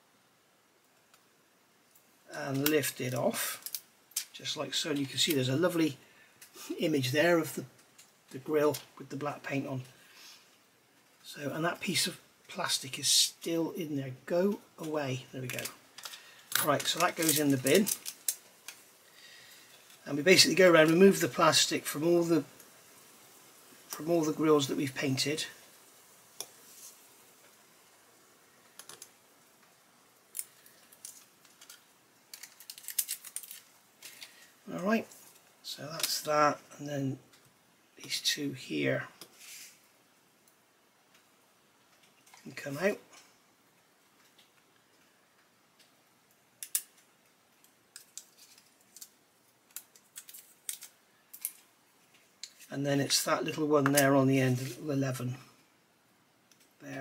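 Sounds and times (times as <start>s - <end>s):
plastic film peeling: 14.8s - 18.9s, 28.7s - 36.3s, 46.5s - 53.2s.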